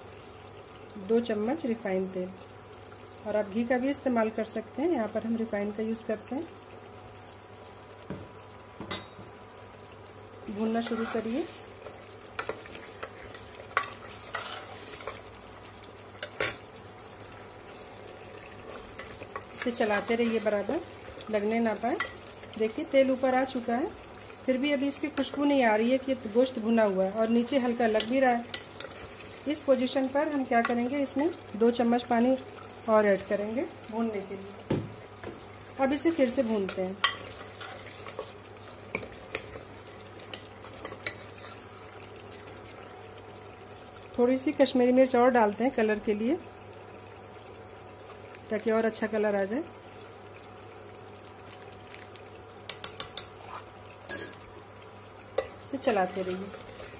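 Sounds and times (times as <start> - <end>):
food sizzling in oil: 0.0 - 56.9
metal ladle scraping pot: 10.8 - 11.4
spatula scraping and clinking pot: 10.8 - 11.4, 12.4 - 15.2.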